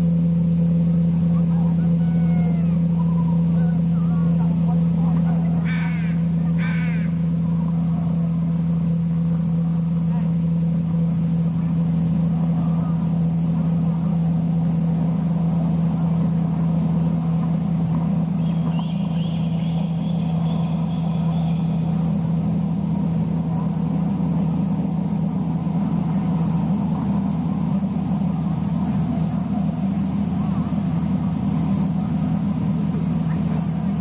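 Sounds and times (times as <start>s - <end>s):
low mechanical drone: 0.0s - 34.0s
faint high-pitched call: 1.6s - 4.2s, 18.4s - 22.1s.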